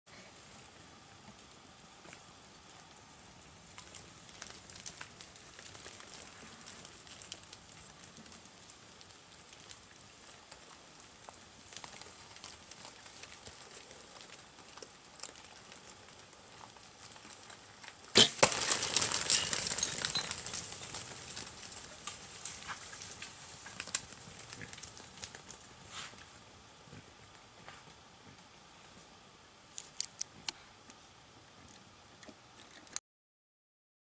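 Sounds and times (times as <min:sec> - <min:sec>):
hogs scuffling: 0:00.4 - 0:29.0
animals crashing through brush: 0:18.1 - 0:25.6.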